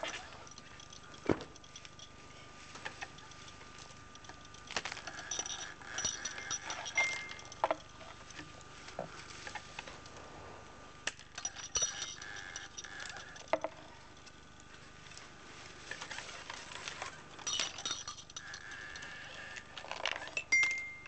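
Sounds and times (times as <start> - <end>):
faint steady tone: 0.0 - 9.4, 10.4 - 21.0
beads clicking on a track: 2.8 - 8.4, 11.1 - 14.6.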